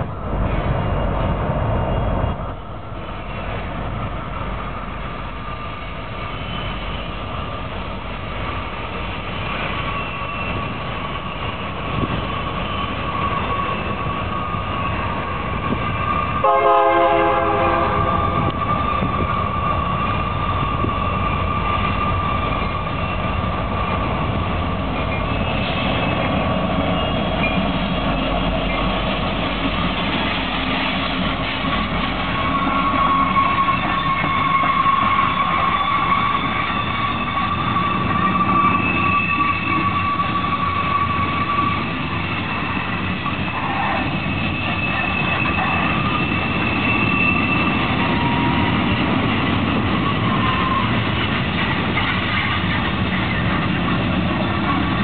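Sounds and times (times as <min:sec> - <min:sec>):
diesel locomotive engines: 0:00.0 - 0:55.0
train wheels on rails: 0:00.0 - 0:55.0
locomotive horn blast: 0:16.4 - 0:18.6.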